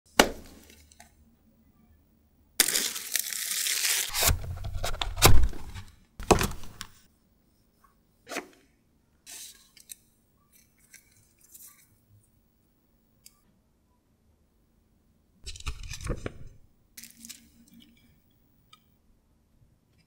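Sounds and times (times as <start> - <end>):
plastic wrap tearing: 2.6 - 5.8.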